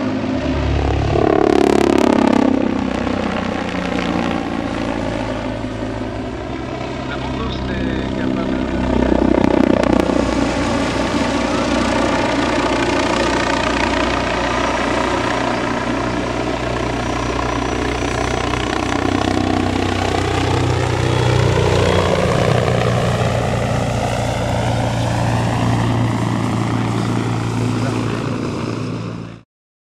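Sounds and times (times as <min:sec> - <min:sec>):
helicopter engines whining: 0:00.0 - 0:29.4
helicopter rotor beat: 0:00.0 - 0:29.4.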